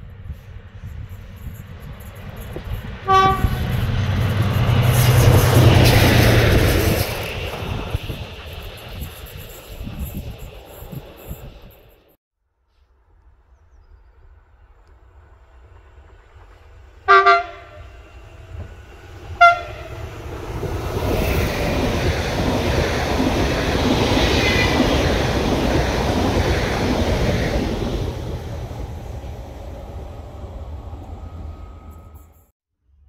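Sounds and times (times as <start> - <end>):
train wheels rushing on rail: 0.0 - 12.2, 14.9 - 32.5
train horn blasts: 3.0 - 4.0, 17.1 - 18.6, 19.2 - 20.2.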